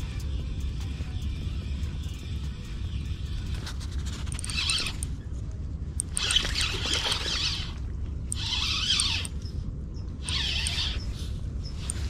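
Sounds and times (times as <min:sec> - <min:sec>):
steady low rumble: 0:00.0 - 0:12.0
fishing reel whirring: 0:02.9 - 0:05.2, 0:06.0 - 0:09.6, 0:10.2 - 0:12.0.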